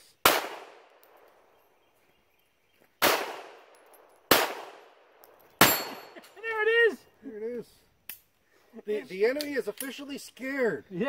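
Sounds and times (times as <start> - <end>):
pistol shots ringing out: 0.2 - 1.3, 3.0 - 5.0, 5.6 - 6.2.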